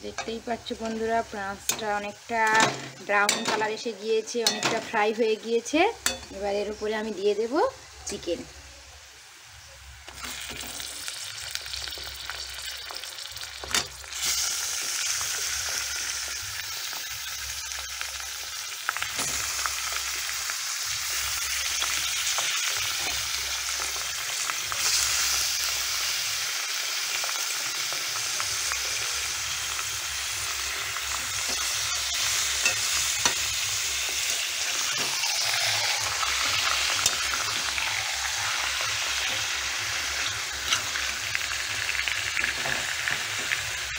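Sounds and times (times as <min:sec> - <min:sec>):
chicken sizzling in hot oil: 0:00.0 - 0:43.9
steel spatula tapping and scraping: 0:04.4 - 0:04.9, 0:06.0 - 0:06.3.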